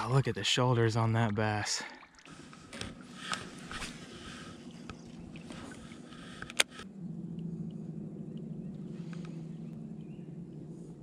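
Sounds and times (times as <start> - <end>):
steady low hum: 2.3 - 11.0.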